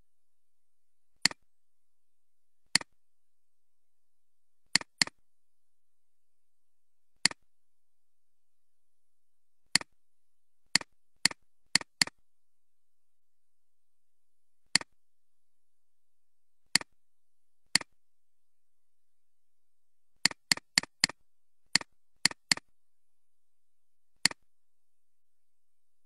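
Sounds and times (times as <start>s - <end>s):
mouse button clicks: 1.2s - 1.4s, 4.7s - 5.2s, 24.2s - 24.4s.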